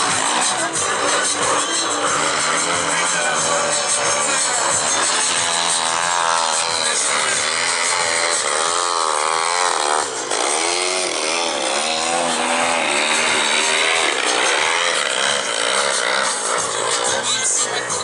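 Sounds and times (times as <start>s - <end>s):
two-stroke model plane engine revving: 0.0s - 18.0s.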